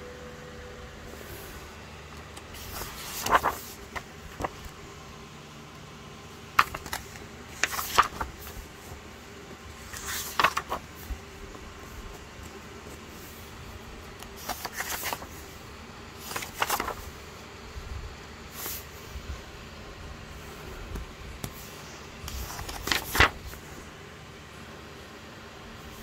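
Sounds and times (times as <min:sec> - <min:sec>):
paper pages being turned: 0:02.3 - 0:04.8, 0:06.5 - 0:09.0, 0:09.6 - 0:13.5, 0:14.2 - 0:15.6, 0:16.2 - 0:17.2, 0:18.5 - 0:18.9, 0:20.9 - 0:23.8.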